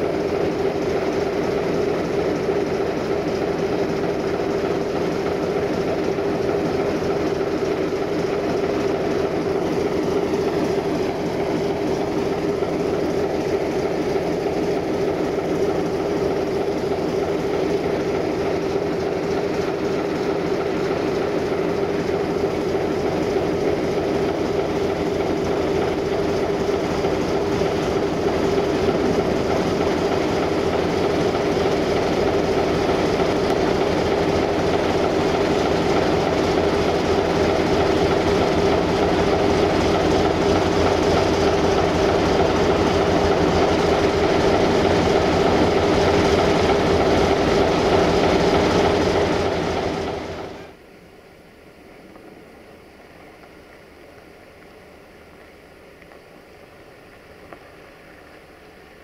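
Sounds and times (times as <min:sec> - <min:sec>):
diesel train running: 0:00.0 - 0:50.8.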